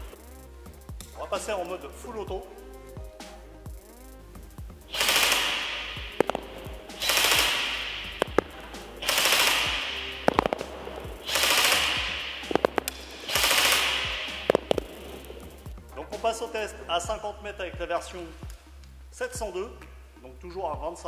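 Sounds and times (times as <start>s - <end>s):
pellets clicking on target: 4.8s - 15.9s
airsoft gun full-auto bursts: 4.9s - 15.6s.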